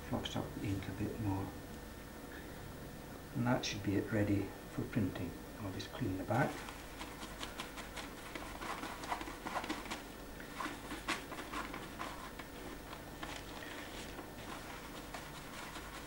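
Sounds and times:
cloth wiping a metal plate: 6.3s - 16.0s.

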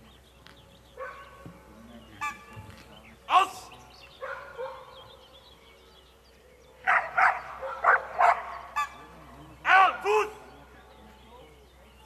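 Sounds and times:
dog barking: 1.0s - 1.4s, 4.2s - 5.0s, 6.8s - 8.7s.

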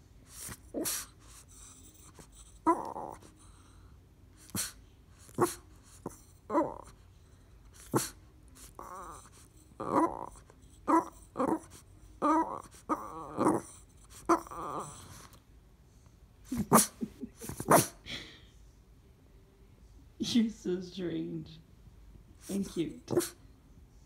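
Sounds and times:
dog grunting and groaning: 0.3s - 3.4s, 4.4s - 7.0s, 7.8s - 15.4s, 16.5s - 18.0s, 23.0s - 23.4s
dog snorting: 0.3s - 3.6s, 4.4s - 7.0s, 7.7s - 15.4s, 16.5s - 18.0s, 22.4s - 23.4s.

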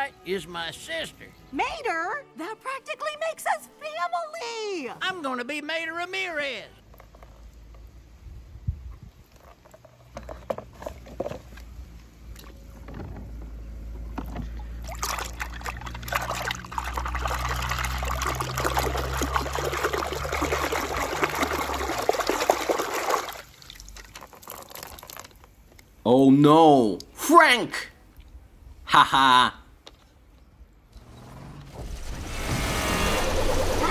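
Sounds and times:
water splashing in plastic tub: 14.5s - 25.4s.

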